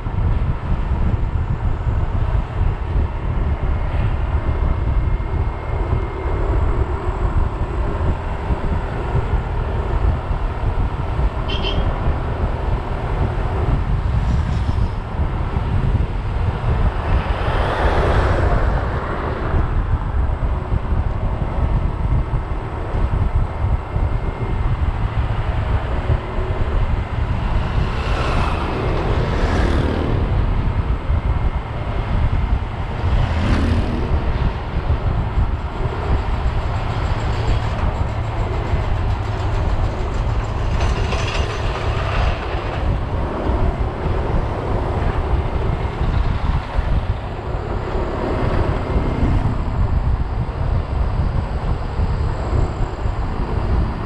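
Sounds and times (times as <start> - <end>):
bicycle wheels road noise: 0.0 - 54.0
wind rushing over microphone: 0.0 - 54.0.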